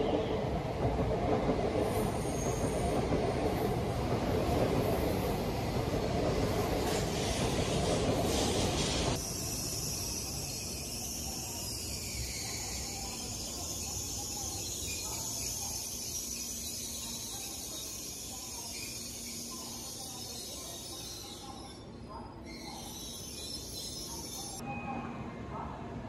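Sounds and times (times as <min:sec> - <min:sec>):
passing train rush: 0:00.0 - 0:26.0.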